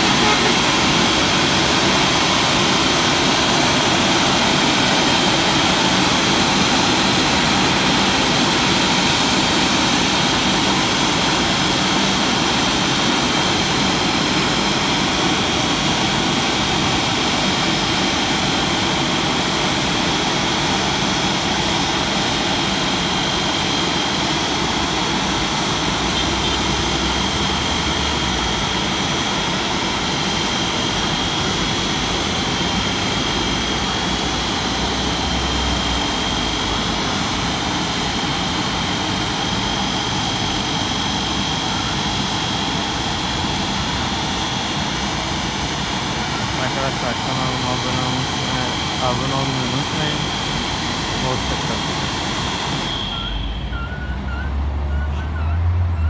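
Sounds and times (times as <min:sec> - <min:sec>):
car wash machine noise: 0:00.0 - 0:54.3
thin high whine: 0:46.2 - 0:54.6.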